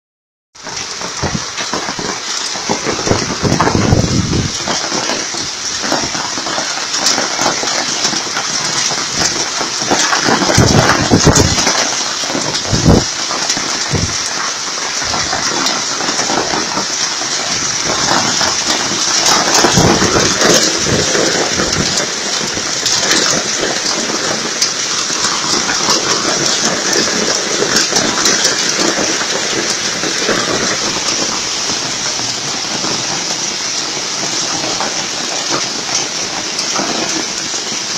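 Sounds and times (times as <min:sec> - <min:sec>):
heavy rain and hail pelting: 0:00.6 - 0:37.9.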